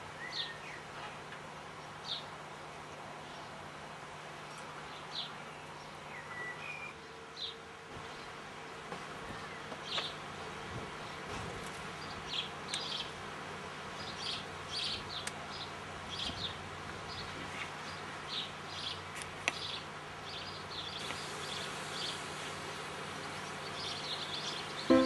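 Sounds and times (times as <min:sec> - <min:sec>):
small birds chirping: 0:00.1 - 0:01.0, 0:04.4 - 0:10.3, 0:10.9 - 0:25.0.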